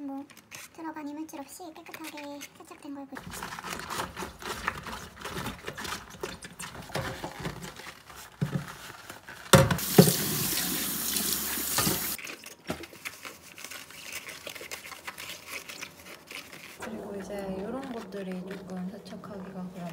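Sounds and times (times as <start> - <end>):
tap water running into steel sink: 9.7 - 12.2.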